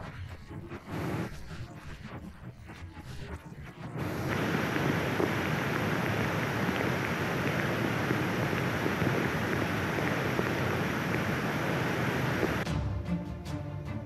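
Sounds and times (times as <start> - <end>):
floodwater rushing: 4.0 - 12.6.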